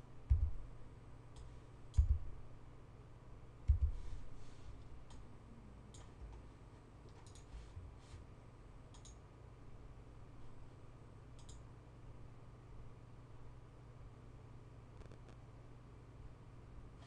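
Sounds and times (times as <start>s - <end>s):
low electrical hum: 0.0s - 17.0s
computer mouse clicks: 1.3s - 2.2s, 7.1s - 7.5s, 8.9s - 9.2s, 11.4s - 11.7s.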